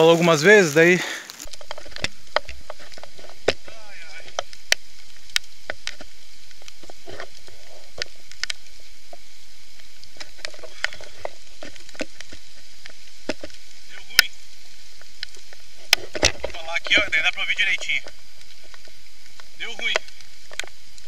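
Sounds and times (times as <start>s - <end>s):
emergency blanket crackling: 0.0s - 21.0s.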